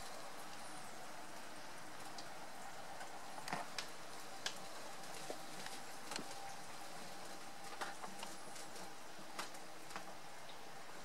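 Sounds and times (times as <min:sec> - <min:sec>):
rain hiss: 0:00.0 - 0:11.0
raindrops tapping on hard surface: 0:03.0 - 0:06.6, 0:07.7 - 0:10.2.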